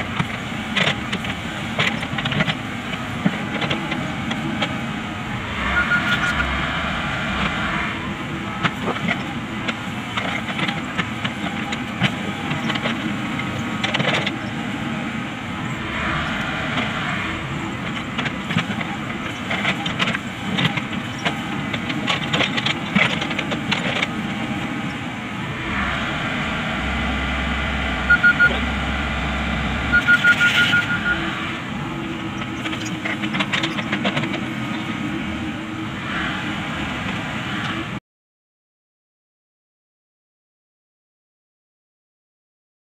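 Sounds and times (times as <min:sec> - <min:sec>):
excavator engine and hydraulic drone: 0:00.0 - 0:38.0
rapid high beeps: 0:05.7 - 0:06.4, 0:28.0 - 0:28.8, 0:29.8 - 0:31.4.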